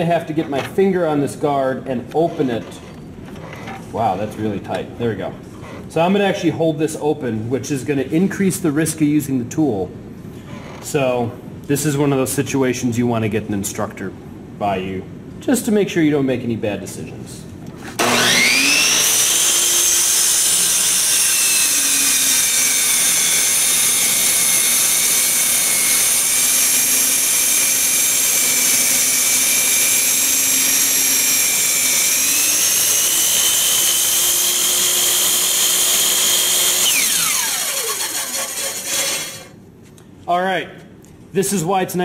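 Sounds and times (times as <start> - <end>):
miter saw motor whining: 18.0 - 39.5.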